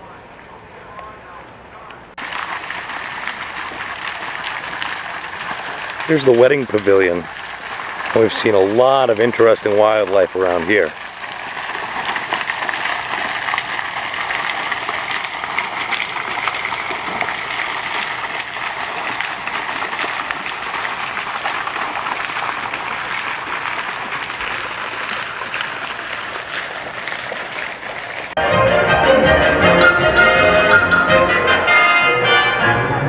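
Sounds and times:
fountain water splashing: 0:00.0 - 0:28.4
orchestral music: 0:28.4 - 0:33.0.

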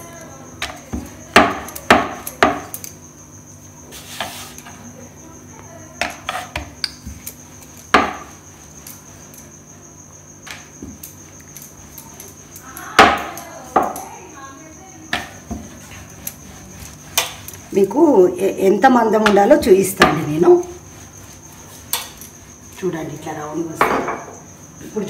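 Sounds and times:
rolling pin knocking on stone: 0:00.6 - 0:02.7, 0:07.9 - 0:08.3.

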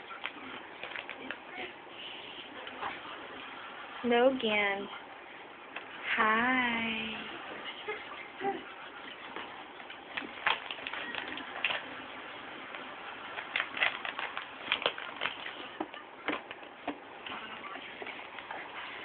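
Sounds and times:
plastic snack packet crinkling: 0:00.1 - 0:01.4, 0:09.9 - 0:17.0.

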